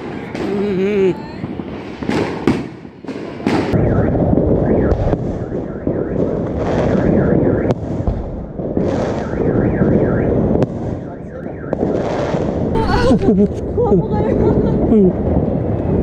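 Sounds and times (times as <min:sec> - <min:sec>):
fireworks crackling and banging: 0:00.0 - 0:16.0.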